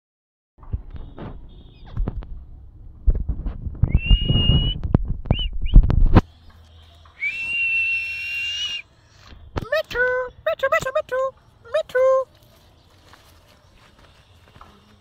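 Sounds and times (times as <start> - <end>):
low thumps: 0.6 - 6.3.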